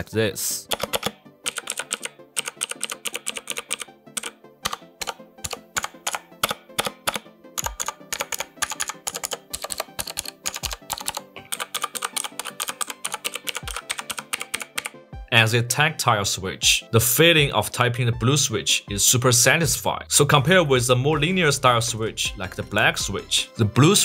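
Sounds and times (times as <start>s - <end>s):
mechanical keyboard clicks: 0.7s - 15.0s.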